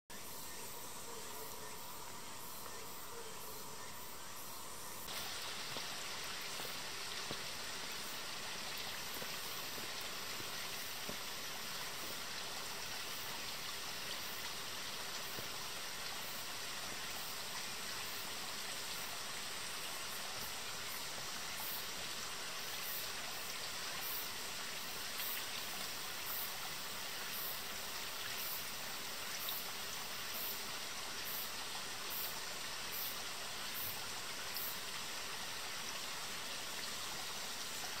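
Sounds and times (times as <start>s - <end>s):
forest stream rushing: 0.1s - 38.0s.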